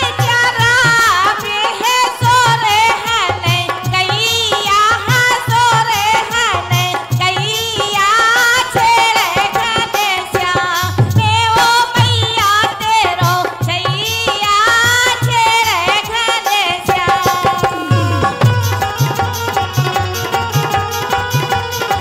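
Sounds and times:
woman singing folk song: 0:00.0 - 0:18.5
low hand drum beat: 0:17.1 - 0:19.3.

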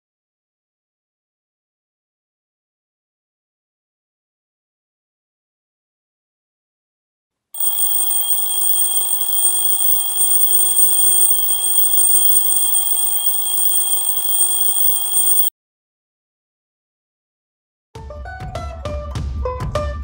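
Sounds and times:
phone alarm high-pitched tone: 0:07.6 - 0:15.5.

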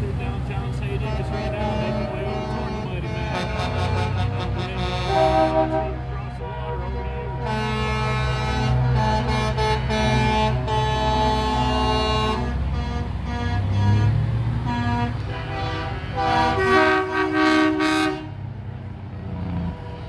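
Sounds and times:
diesel trucks rumbling past: 0:00.0 - 0:20.0
truck air horns blowing: 0:00.5 - 0:18.4, 0:19.5 - 0:20.0.

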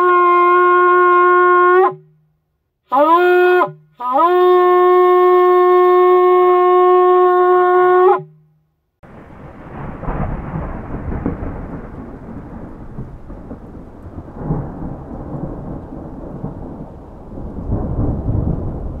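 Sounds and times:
thunder rumbling: 0:09.0 - 0:19.0.

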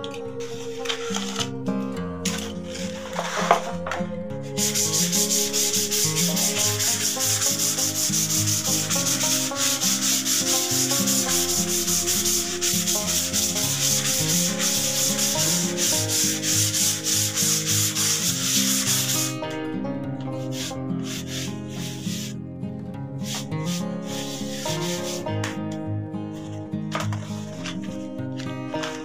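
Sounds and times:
sandpaper scratching on wood: 0:00.4 - 0:01.5, 0:02.3 - 0:03.8, 0:04.4 - 0:19.4, 0:20.4 - 0:22.4, 0:23.2 - 0:25.6.

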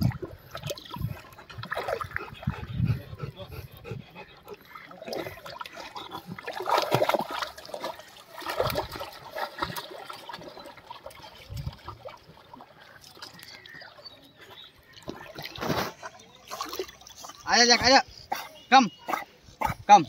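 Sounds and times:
dog splashing in water: 0:00.0 - 0:02.5, 0:04.8 - 0:13.7, 0:15.0 - 0:18.5
tail slapping water: 0:00.0 - 0:18.5.

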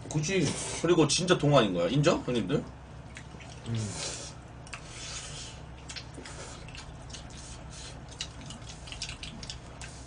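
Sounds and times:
low steady hum: 0:00.0 - 0:10.0
soft chewing: 0:02.7 - 0:10.0.

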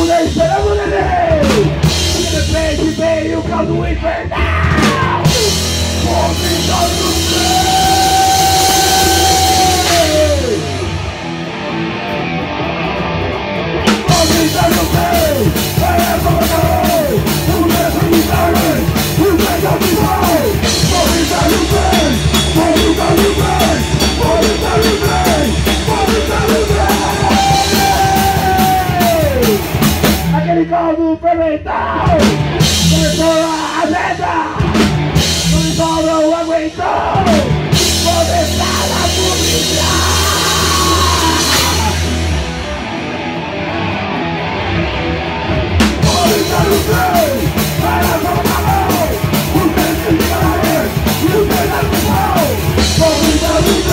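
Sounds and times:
person singing into microphone: 0:00.0 - 0:10.7, 0:14.1 - 0:29.6, 0:35.5 - 0:42.0, 0:46.0 - 0:53.9
distorted electric guitar: 0:00.0 - 0:30.5, 0:32.0 - 0:53.9
pounding drum kit: 0:00.0 - 0:30.7, 0:31.9 - 0:53.9.

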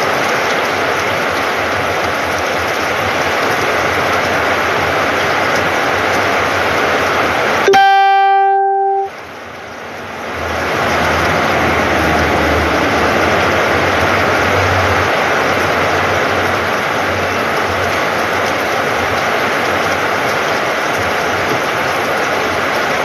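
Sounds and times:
heavy rain: 0:00.0 - 0:23.0
loud pitched tone: 0:07.7 - 0:09.1.

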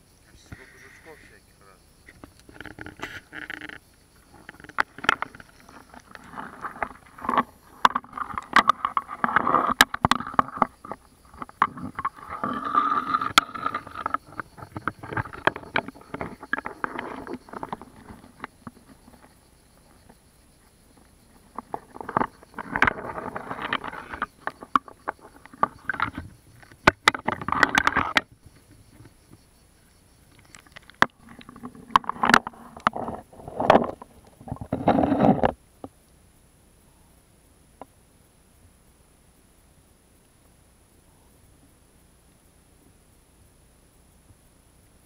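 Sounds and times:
stones clicking and knocking: 0:02.1 - 0:20.2, 0:21.0 - 0:28.3, 0:30.3 - 0:35.6.

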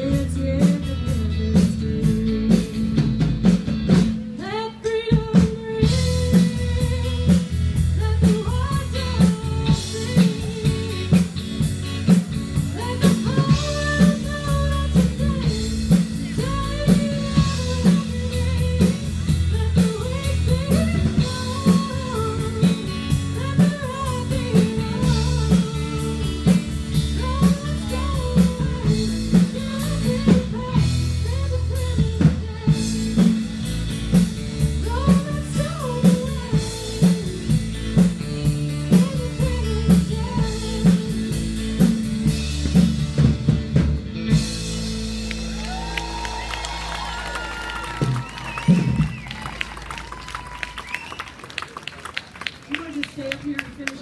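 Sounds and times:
person singing: 0:00.0 - 0:03.1, 0:04.3 - 0:42.1
drum kit beat: 0:00.0 - 0:51.1
bass guitar: 0:00.0 - 0:52.2
electric guitar: 0:00.0 - 0:54.0.

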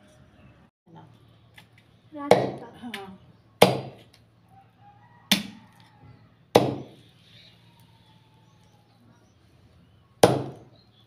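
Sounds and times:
cleaver chopping meat and bone: 0:02.3 - 0:02.7, 0:03.6 - 0:04.2, 0:05.3 - 0:05.6, 0:06.5 - 0:07.0, 0:10.2 - 0:10.7.

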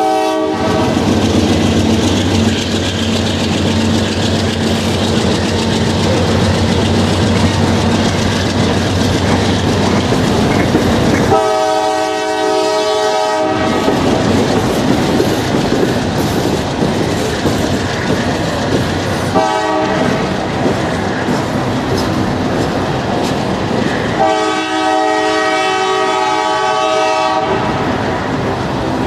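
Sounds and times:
train horn blasts: 0:00.0 - 0:01.0, 0:11.2 - 0:14.1, 0:19.3 - 0:20.3, 0:24.2 - 0:27.9
train wheels rumbling and clacking: 0:00.0 - 0:29.0.

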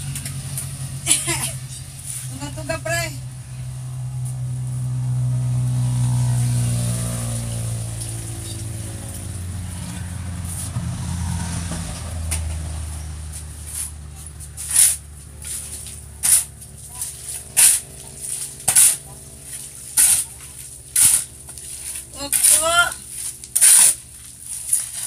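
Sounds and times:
engine running: 0:00.0 - 0:25.0
metal shovel hitting concrete: 0:13.6 - 0:25.0.

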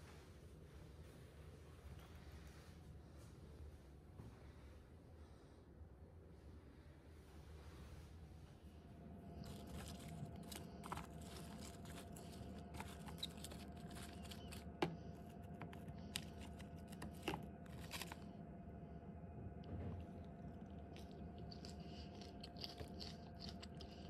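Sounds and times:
faint steady hum: 0:00.0 - 0:24.0
lettuce and croutons crunching: 0:09.2 - 0:18.4, 0:19.6 - 0:24.0
fork stirring salad in plastic container: 0:09.4 - 0:18.3.

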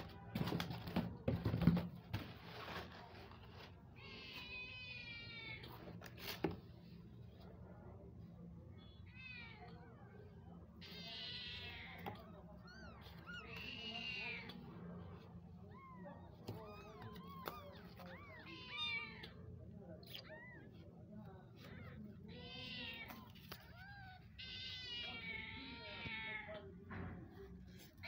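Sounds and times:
cats mewing: 0:10.8 - 0:14.7, 0:15.6 - 0:20.8, 0:21.6 - 0:26.7.

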